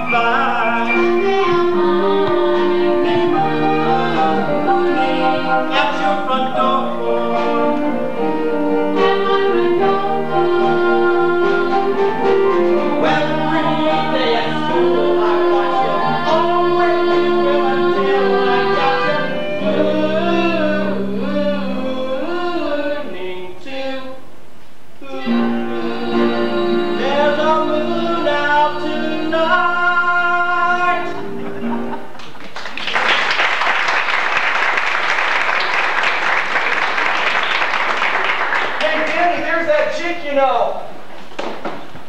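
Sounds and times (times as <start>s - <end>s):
singing with instrumental accompaniment: 0.0s - 32.1s
audience applause: 32.0s - 39.9s.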